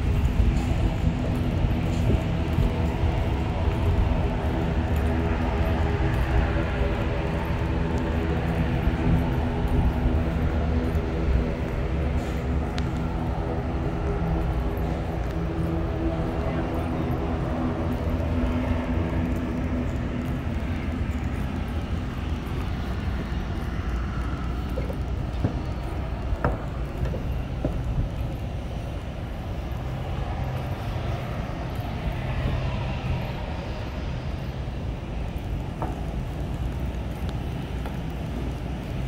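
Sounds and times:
jet engines rumbling: 0:00.0 - 0:39.0.

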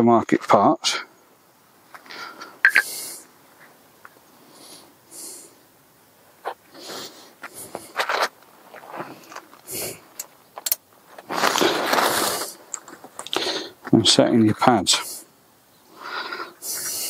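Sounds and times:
metal parts clicking and knocking: 0:10.1 - 0:10.8
plastic bag rustling: 0:11.0 - 0:13.3.

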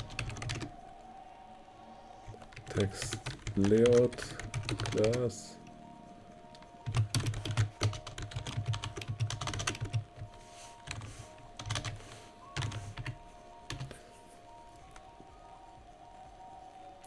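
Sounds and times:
typing on keyboard: 0:00.0 - 0:00.8, 0:02.3 - 0:05.4, 0:06.5 - 0:14.0.

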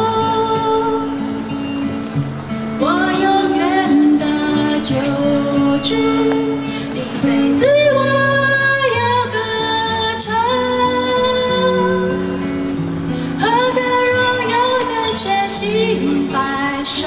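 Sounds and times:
strummed acoustic guitar: 0:00.0 - 0:17.0
woman singing worship song: 0:02.8 - 0:12.4, 0:13.3 - 0:17.0.

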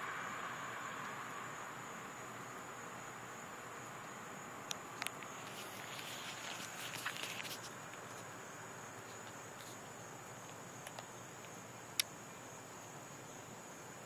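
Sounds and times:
faint outdoor hiss: 0:00.0 - 0:14.0
insect trilling: 0:00.0 - 0:14.0
soft rustle: 0:05.0 - 0:08.4, 0:09.0 - 0:11.1.

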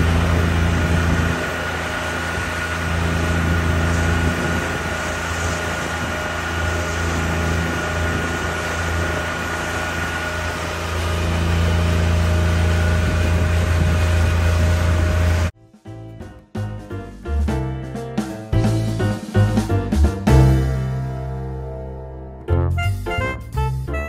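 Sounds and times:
outboard motor running: 0:00.0 - 0:15.6.

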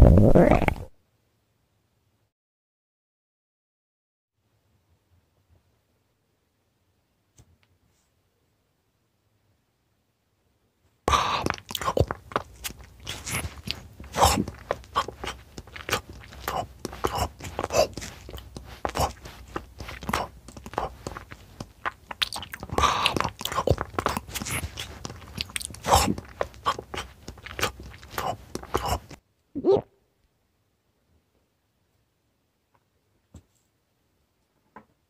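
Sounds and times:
crunching and chewing: 0:11.1 - 0:29.2.

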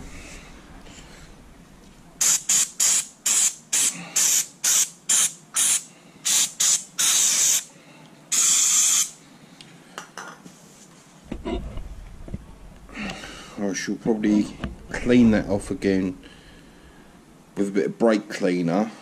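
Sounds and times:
aerosol can spraying: 0:02.2 - 0:07.7, 0:08.3 - 0:09.2.

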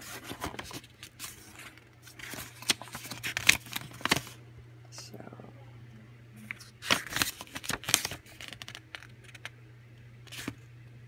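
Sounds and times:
paper pages rustling: 0:00.0 - 0:04.4, 0:06.5 - 0:09.5, 0:10.3 - 0:10.6
steady low hum: 0:00.0 - 0:11.0.

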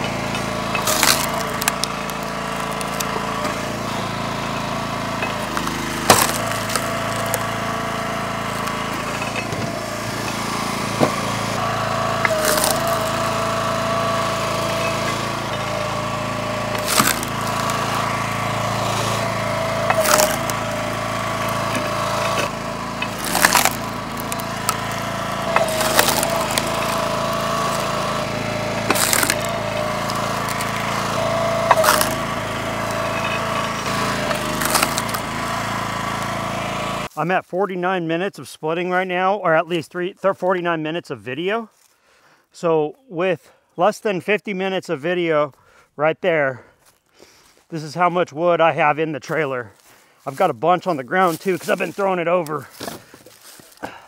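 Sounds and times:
gas engine running: 0:00.0 - 0:37.2, 0:49.7 - 0:54.0
wood splitting cracks: 0:00.1 - 0:36.4, 0:52.4 - 0:54.0
split wood landing: 0:00.1 - 0:37.0, 0:52.5 - 0:54.0.

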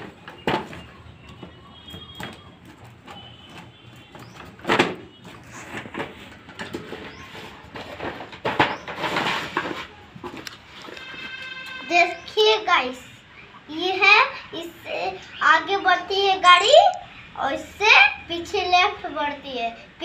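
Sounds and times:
cardboard scraping and knocks: 0:00.0 - 0:11.2.

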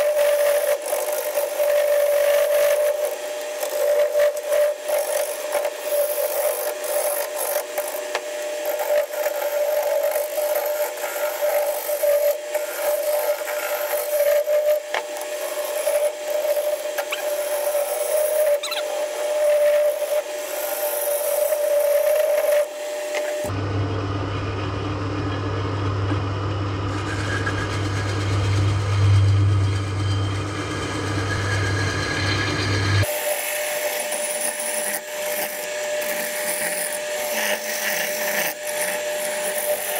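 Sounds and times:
gouge scraping spinning wood: 0:00.0 - 0:23.6, 0:26.8 - 0:39.9
woodworking lathe humming: 0:00.0 - 0:39.9.

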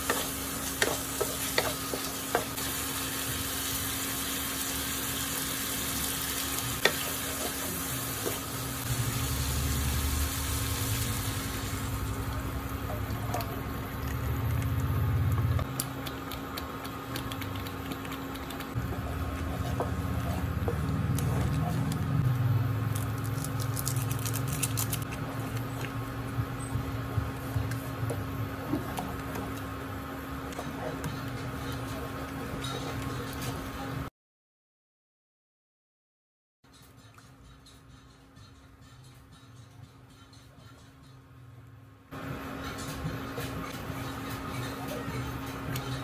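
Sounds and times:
wooden spoon stirring in pan: 0:00.0 - 0:03.0, 0:06.7 - 0:08.9, 0:16.2 - 0:22.0
meat sizzling in a frying pan: 0:00.0 - 0:12.2.

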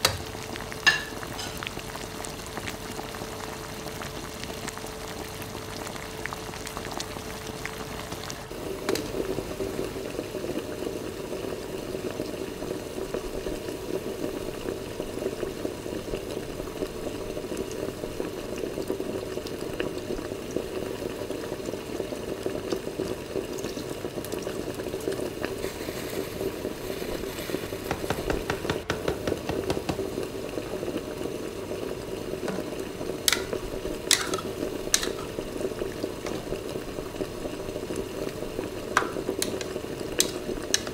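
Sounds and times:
liquid bubbling in a pan: 0:00.0 - 0:40.9
cream being poured: 0:24.9 - 0:31.5.

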